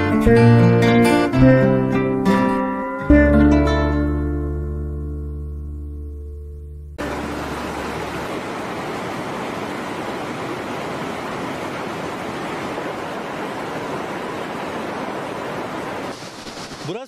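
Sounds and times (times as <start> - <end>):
stream rushing over rocks: 7.0 - 16.2.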